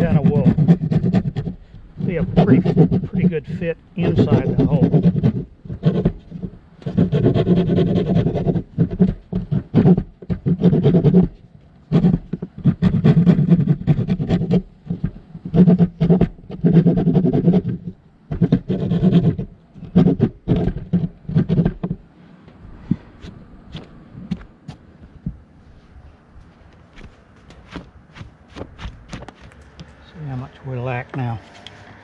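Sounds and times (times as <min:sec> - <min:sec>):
hand rasp scraping: 0:00.0 - 0:22.0.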